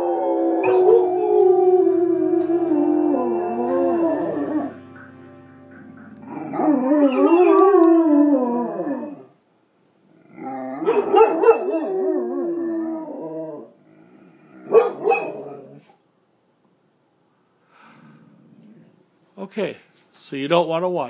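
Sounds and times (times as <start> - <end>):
dogs howling: 0.0 - 4.7, 6.3 - 9.4, 10.4 - 13.8, 14.6 - 15.8
dog barking: 0.6 - 1.1, 10.8 - 11.8, 14.7 - 15.6
tv theme music: 0.9 - 8.1.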